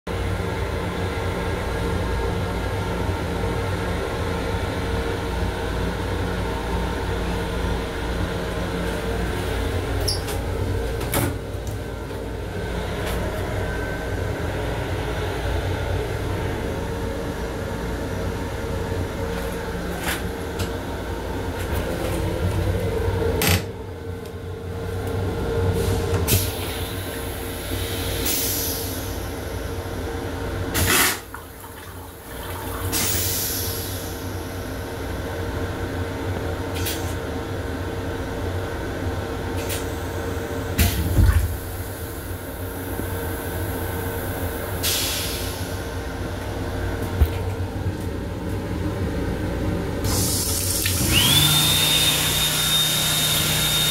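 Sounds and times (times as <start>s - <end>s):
toilet flushing rush: 25.3s - 35.8s, 49.7s - 53.9s.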